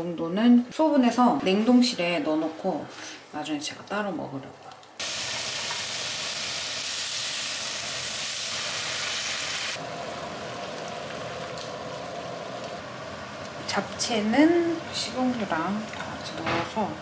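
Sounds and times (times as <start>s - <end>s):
meat sizzling in a frying pan: 5.0s - 9.8s.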